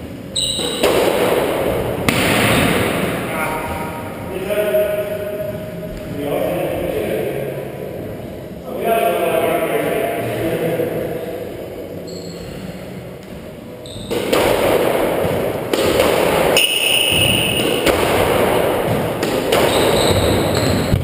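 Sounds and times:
high squeak: 0:00.3 - 0:00.8, 0:12.0 - 0:12.7, 0:13.8 - 0:14.2, 0:19.6 - 0:21.0
racket striking ball: 0:00.5 - 0:03.2, 0:14.0 - 0:21.0
squash ball thudding off walls: 0:14.1 - 0:21.0.

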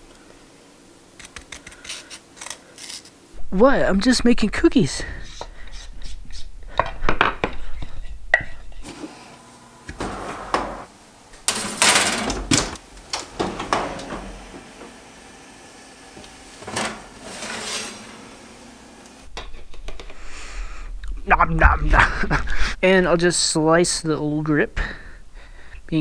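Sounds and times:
baking sheet scraping on rack: 0:08.8 - 0:10.9, 0:16.1 - 0:19.2
oven door opening with clatter: 0:09.9 - 0:15.1, 0:16.2 - 0:17.8.

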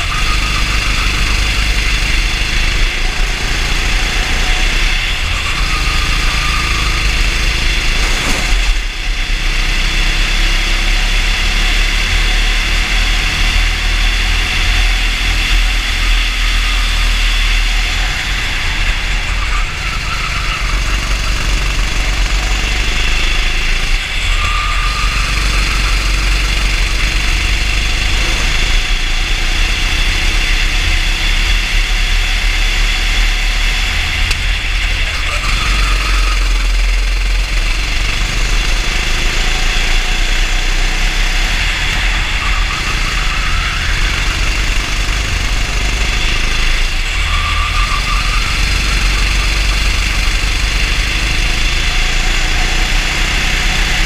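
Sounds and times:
deep rumble: 0:00.0 - 0:54.0
kart engine running: 0:00.0 - 0:54.0.

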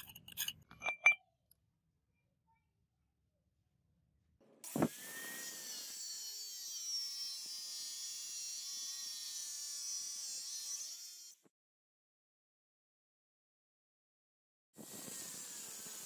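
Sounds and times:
angle grinder cutting metal: 0:04.7 - 0:11.4.

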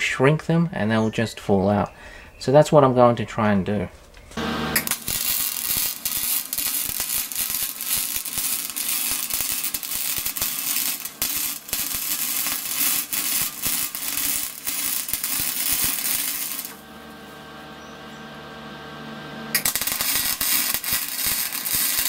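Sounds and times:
welding arc crackling and sizzling: 0:04.4 - 0:17.8, 0:19.5 - 0:22.0.

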